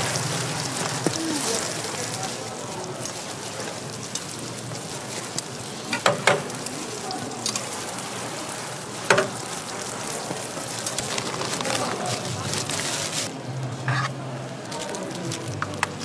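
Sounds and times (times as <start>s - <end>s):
pancakes sizzling in oil: 0.0s - 14.0s
metal press knocking on griddle: 5.9s - 6.5s.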